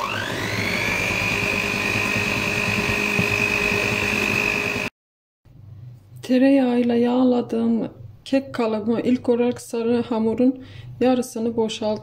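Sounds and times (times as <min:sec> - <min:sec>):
electric hand mixer whining: 0:00.0 - 0:04.9.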